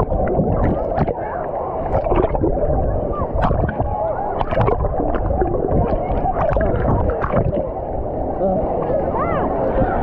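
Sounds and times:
indistinct crowd voices: 0.0 - 10.0
water sloshing and gurgling: 0.0 - 10.0
small splashes and knocks: 3.4 - 7.6.

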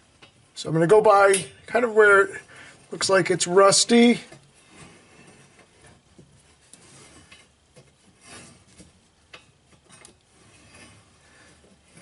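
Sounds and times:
metal scraping on metal: 3.9 - 12.0.

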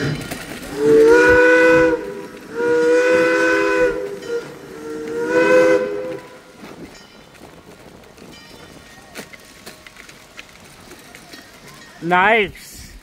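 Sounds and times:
steam locomotive whistle blasts: 0.7 - 6.6.

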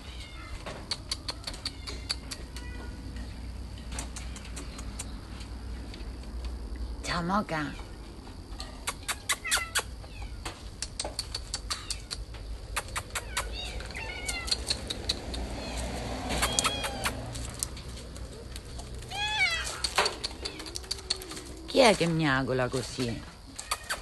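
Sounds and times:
cats meowing: 0.0 - 3.2, 8.6 - 10.4, 11.7 - 17.5, 18.4 - 21.7.

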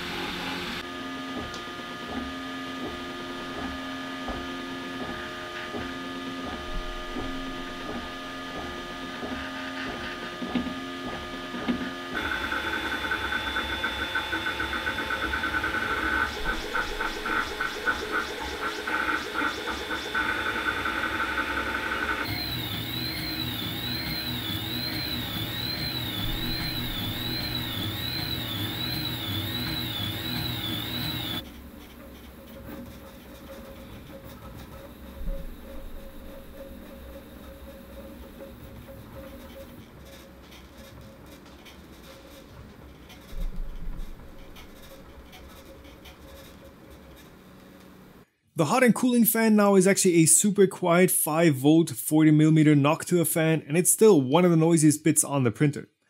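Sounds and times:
pulsing high whine: 0.0 - 1.3, 2.4 - 31.6, 34.1 - 39.8
three d printer stepper motor whine: 0.0 - 31.8, 33.6 - 40.2
printer fan noise: 0.0 - 48.2
rising and falling high tone: 22.2 - 31.4.

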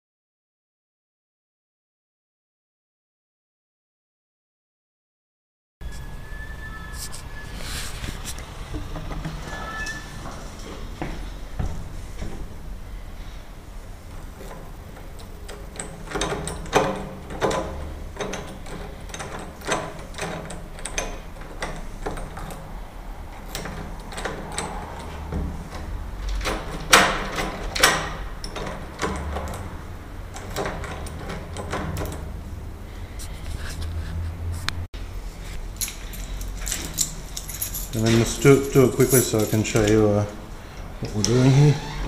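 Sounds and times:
door knob rattling: 14.1 - 22.7
key jiggling in lock: 14.1 - 22.7, 35.8 - 40.3.

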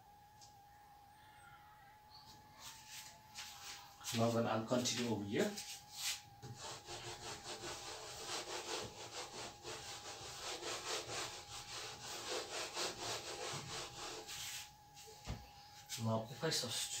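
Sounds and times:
eraser rubbing on whiteboard: 2.6 - 15.1.

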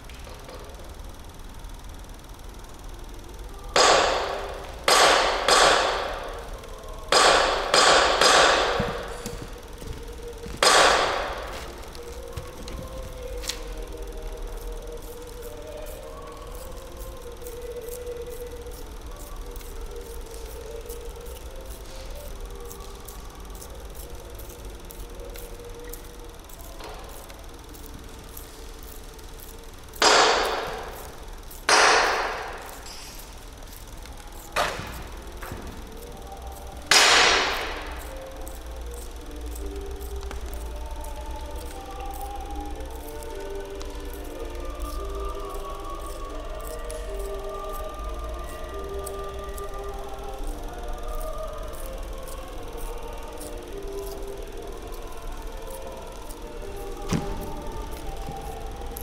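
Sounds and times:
sharp cracks with echo: 7.1 - 8.9.

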